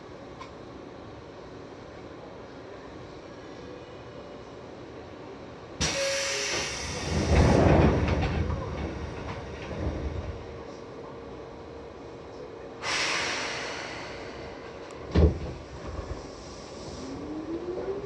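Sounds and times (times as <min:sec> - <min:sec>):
train air release hiss: 0:05.8 - 0:07.5, 0:12.8 - 0:14.7.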